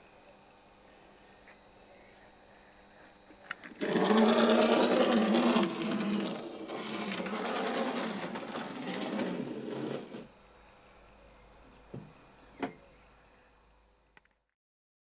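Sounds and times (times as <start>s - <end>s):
small electric motor rattling: 3.5s - 10.3s.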